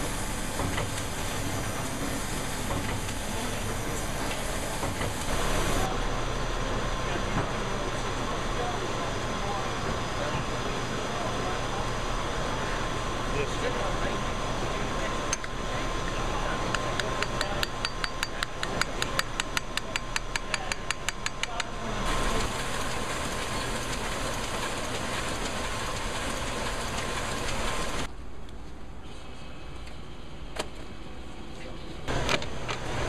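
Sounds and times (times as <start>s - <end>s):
printing press running: 0.0s - 19.8s, 22.0s - 28.1s
hammer tapping on metal: 16.7s - 21.7s.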